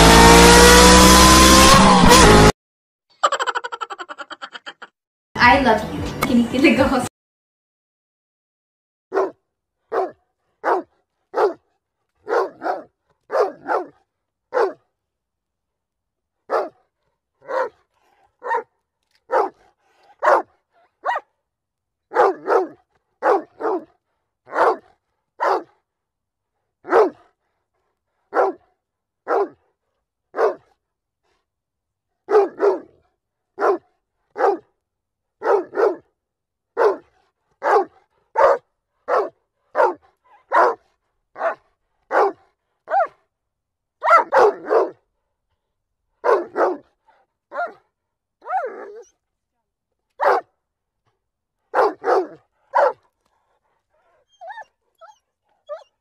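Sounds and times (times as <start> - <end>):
dog barking: 9.1 - 14.9, 16.5 - 21.4, 22.1 - 25.9, 26.8 - 27.6, 28.3 - 30.8, 32.2 - 34.8, 35.4 - 36.1, 36.8 - 43.2, 44.0 - 45.1, 46.2 - 49.1, 50.2 - 50.5, 51.7 - 53.2, 54.0 - 56.0.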